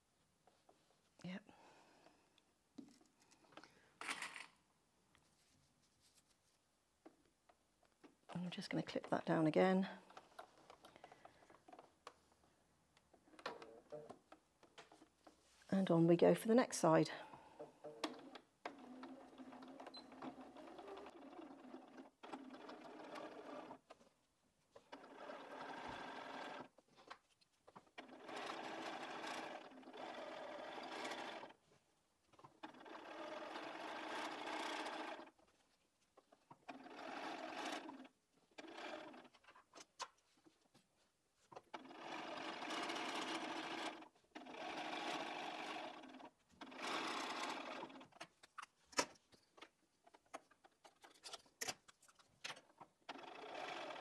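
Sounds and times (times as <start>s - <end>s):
sewing machine stitching: 17.8s - 24.0s, 24.8s - 27.1s, 27.8s - 31.6s, 32.4s - 35.5s, 36.5s - 39.6s, 41.6s - 49.2s, 50.1s - 54.0s.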